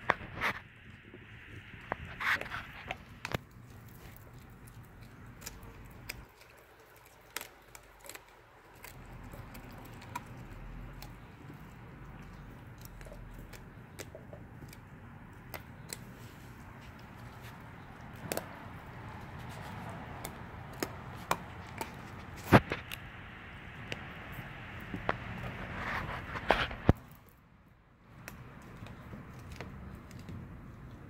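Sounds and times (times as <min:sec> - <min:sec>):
puppy crunching fish: 0:00.0 - 0:27.4, 0:28.0 - 0:31.0
teeth clicking on fish: 0:02.6 - 0:16.1.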